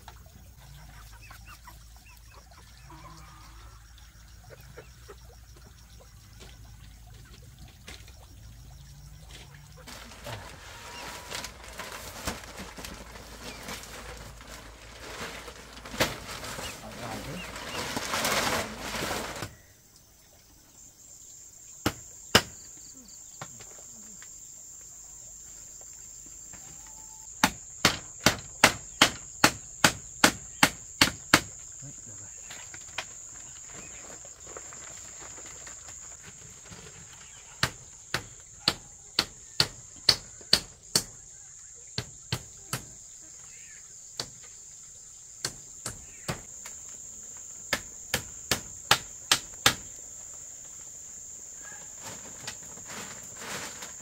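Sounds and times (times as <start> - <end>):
hammer nailing into bamboo: 21.8 - 22.6, 27.4 - 31.5, 37.6 - 41.2, 47.7 - 49.9.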